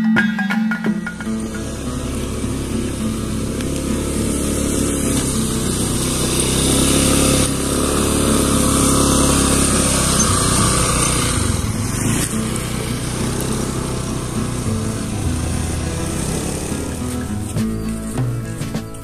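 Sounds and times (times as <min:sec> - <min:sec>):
motor scooter engine running: 0:00.2 - 0:19.0.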